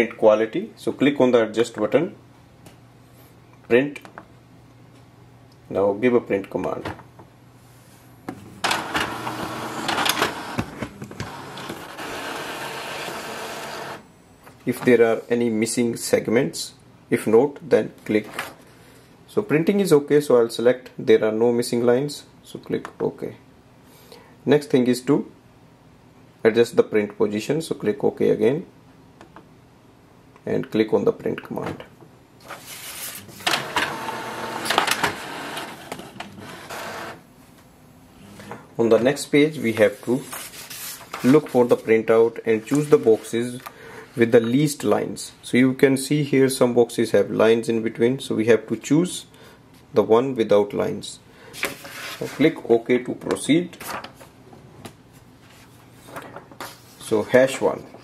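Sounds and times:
inkjet printer clicking and whirring: 8.6 - 14.0, 33.4 - 37.2.

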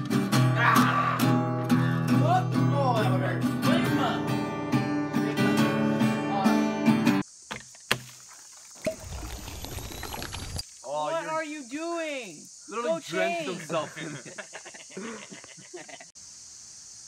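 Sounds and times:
acoustic guitar strumming: 0.0 - 7.2.

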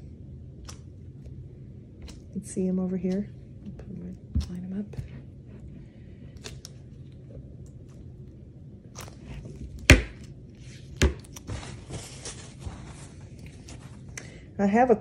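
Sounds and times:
soft rustling: 10.6 - 14.3.

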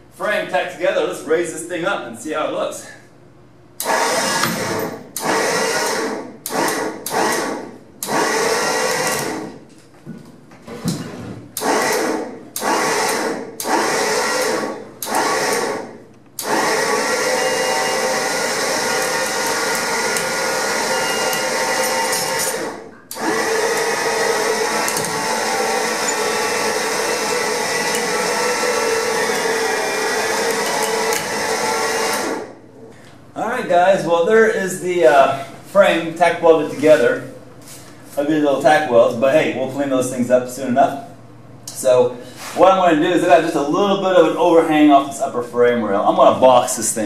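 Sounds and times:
hand hoist grinding and rattling: 16.4 - 32.4.

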